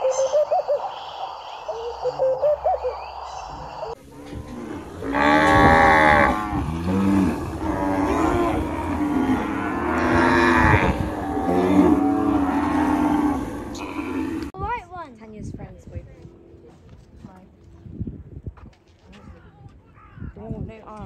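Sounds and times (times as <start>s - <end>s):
cattle mooing: 4.0s - 14.5s.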